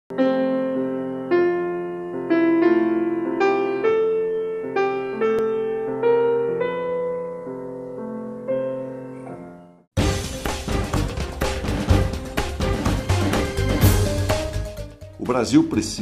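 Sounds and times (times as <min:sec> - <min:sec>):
slow gentle keyboard chords: 0:00.1 - 0:09.8.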